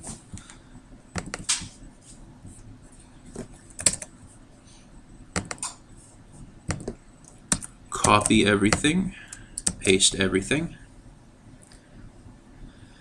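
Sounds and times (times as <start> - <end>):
keyboard clicks: 1.2 - 1.6, 3.7 - 4.1, 5.4 - 5.8, 6.7 - 10.0
computer mouse clicks: 6.7 - 10.0.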